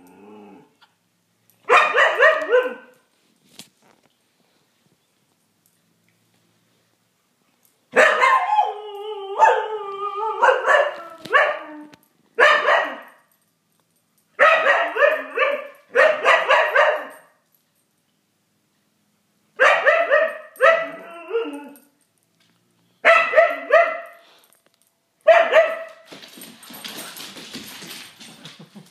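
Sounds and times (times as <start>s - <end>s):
dog barking and yipping: 1.6s - 2.9s, 7.9s - 8.8s, 10.4s - 11.7s, 12.4s - 13.2s, 14.4s - 17.3s, 19.6s - 21.7s, 23.0s - 24.2s, 25.2s - 26.1s.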